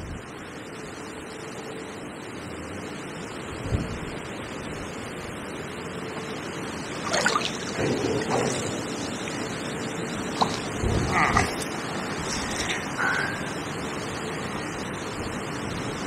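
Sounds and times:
wind buffeting microphone: 0:03.6 - 0:05.4, 0:06.8 - 0:12.9
river water rushing: 0:06.8 - 0:10.8.

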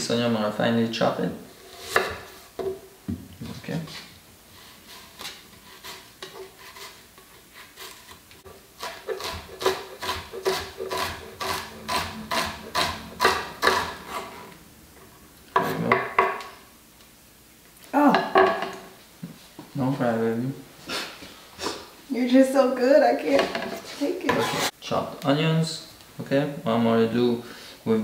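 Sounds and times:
knife chopping on wooden board: 0:08.8 - 0:14.2.

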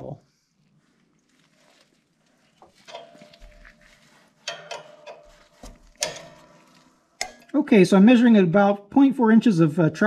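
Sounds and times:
wrench clinking on metal: 0:04.4 - 0:07.5.

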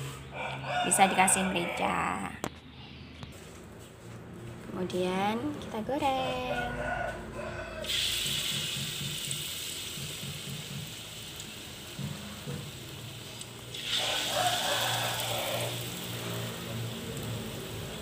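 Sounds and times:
batter sizzling in hot oil: 0:07.8 - 0:18.0.

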